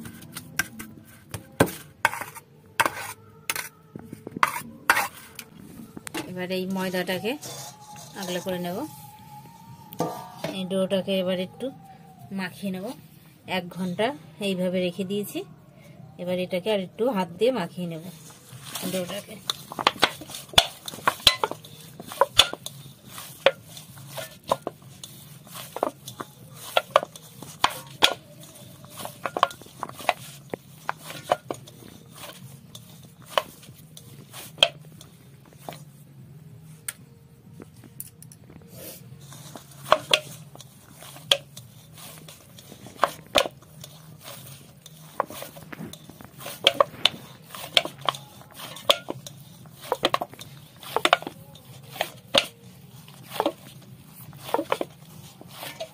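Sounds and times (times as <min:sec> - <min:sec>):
dough knocking against bowl: 0:45.1 - 0:52.6.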